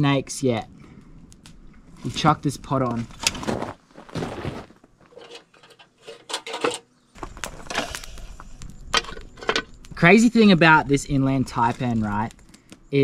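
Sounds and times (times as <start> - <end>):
metal pot clinking on rock: 5.1 - 6.8.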